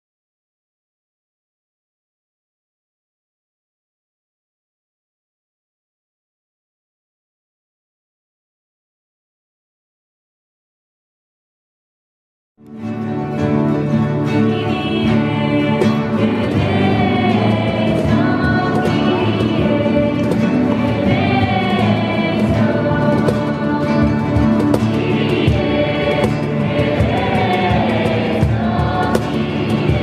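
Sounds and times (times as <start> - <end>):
strummed acoustic guitars: 12.6 - 30.0
choir singing a hymn: 13.9 - 30.0.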